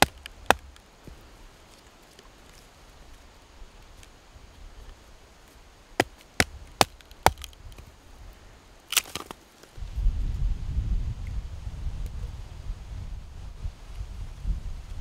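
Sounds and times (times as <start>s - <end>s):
wood chopping knocks: 0.0s - 1.2s, 6.0s - 7.8s.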